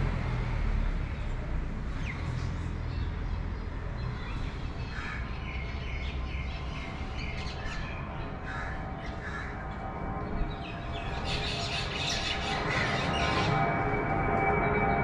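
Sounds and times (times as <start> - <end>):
crows cawing: 4.9 - 5.4, 8.4 - 9.7.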